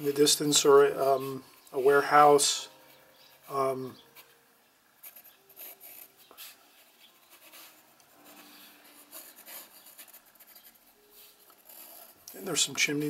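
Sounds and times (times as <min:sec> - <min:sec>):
pencil scratching on paper: 0:05.0 - 0:12.2.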